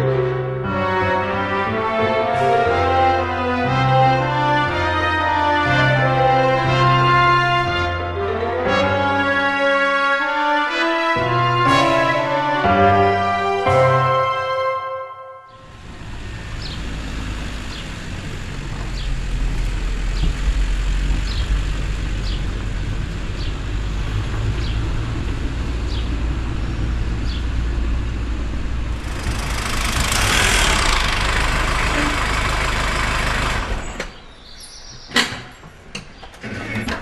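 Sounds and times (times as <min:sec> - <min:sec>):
car engine rumbling: 0:15.5 - 0:34.4.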